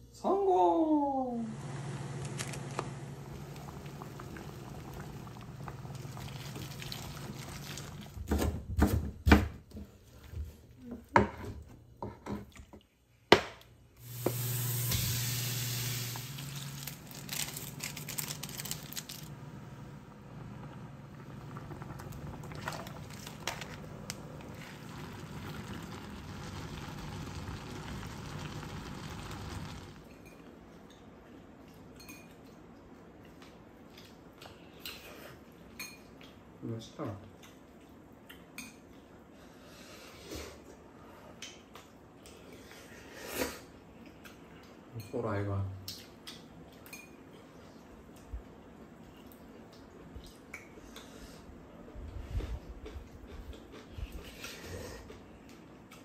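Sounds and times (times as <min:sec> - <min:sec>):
water boiling in a pan: 0:01.6 - 0:08.3, 0:14.0 - 0:30.1
water pouring into a pan: 0:03.4 - 0:08.2, 0:21.0 - 0:30.1
simmering hiss: 0:14.0 - 0:17.1.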